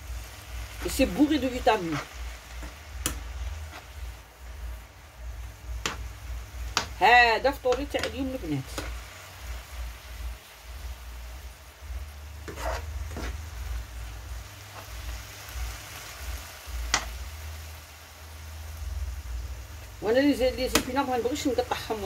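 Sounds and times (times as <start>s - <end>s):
spinach sizzling in pan: 0.0s - 22.0s
utensil scraping pan: 0.8s - 2.8s, 3.6s - 4.0s, 12.4s - 13.6s.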